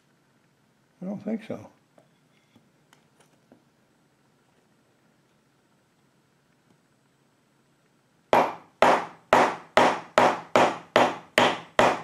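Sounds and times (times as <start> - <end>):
hammer striking peg into wood: 8.4 - 12.0.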